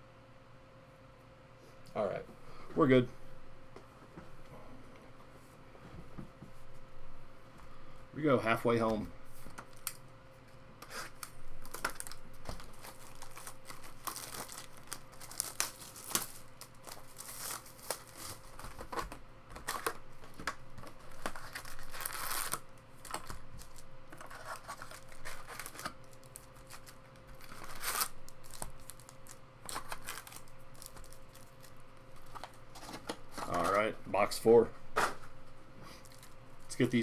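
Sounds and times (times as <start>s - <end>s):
faint steady hum: 0.0s - 37.0s
plastic wrapping tearing and crinkling: 9.5s - 10.0s, 10.9s - 33.7s, 36.0s - 36.8s.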